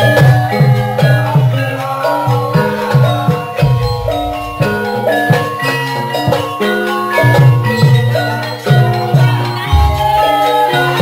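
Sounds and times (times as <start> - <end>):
metallophones ringing: 1.2 - 11.0
drum strokes dropping in pitch: 3.6 - 6.0.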